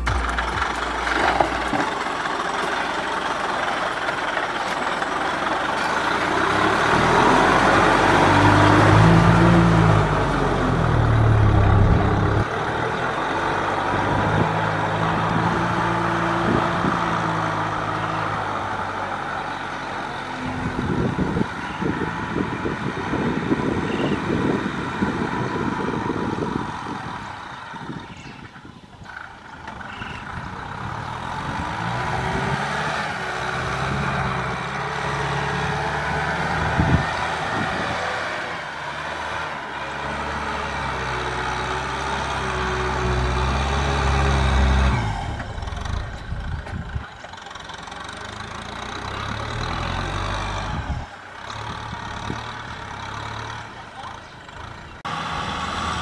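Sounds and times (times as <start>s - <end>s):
rough uneven clatter: 0.0s - 7.2s
tractor diesel engine under load: 0.0s - 56.0s.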